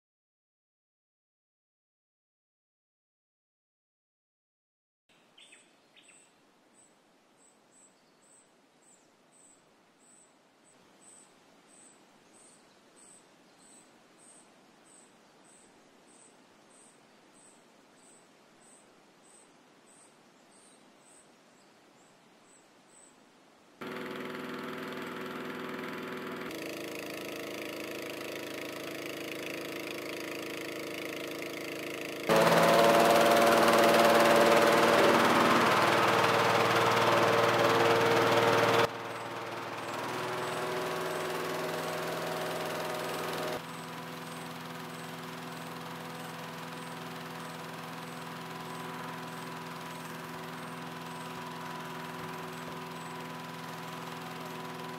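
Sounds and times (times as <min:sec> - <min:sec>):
bird chirps: 0:05.1 - 0:23.2
inflator fan petrol engine running: 0:23.8 - 0:54.9.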